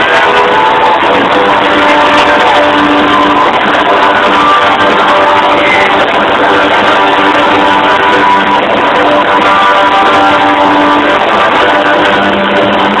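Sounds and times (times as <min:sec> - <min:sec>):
electric guitar: 0:00.0 - 0:13.0
hard rock band playing live: 0:00.0 - 0:13.0.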